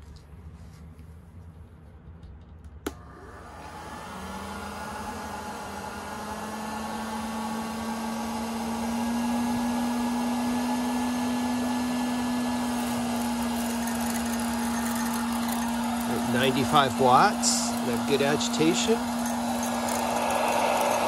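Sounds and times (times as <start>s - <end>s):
fan motor hum and air rush: 0.0s - 21.0s.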